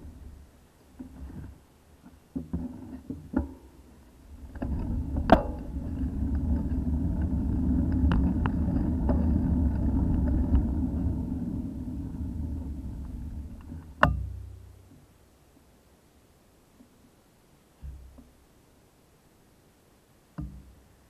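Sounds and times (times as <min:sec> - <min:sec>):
wind and road rumble: 0:00.0 - 0:14.7
bike mount knocking over bumps: 0:20.4 - 0:20.7.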